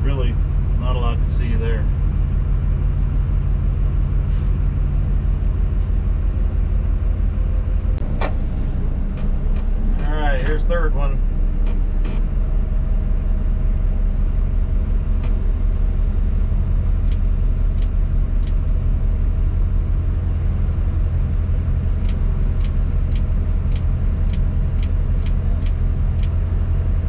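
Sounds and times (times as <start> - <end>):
diesel engine running: 0.0 - 27.0
sharp clicks: 17.0 - 18.6, 22.0 - 26.4.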